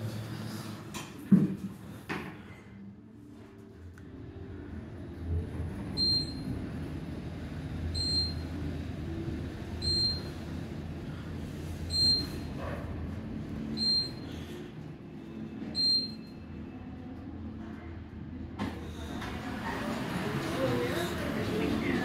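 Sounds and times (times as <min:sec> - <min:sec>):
elevator humming: 0:02.9 - 0:17.6, 0:18.2 - 0:22.0
short high beep: 0:13.8 - 0:14.3, 0:15.8 - 0:16.4.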